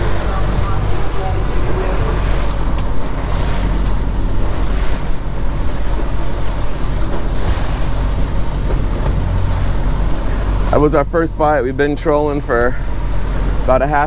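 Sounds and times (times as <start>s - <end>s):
wind on microphone: 0.0s - 10.9s
boat wake churning: 0.0s - 14.0s
outboard motors running: 0.0s - 14.0s.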